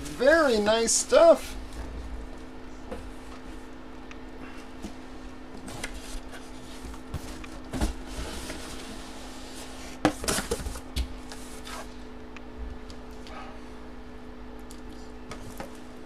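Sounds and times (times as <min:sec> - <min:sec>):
steady low hum: 0:00.0 - 0:16.0
cardboard boxes rubbing and knocking: 0:05.6 - 0:12.0.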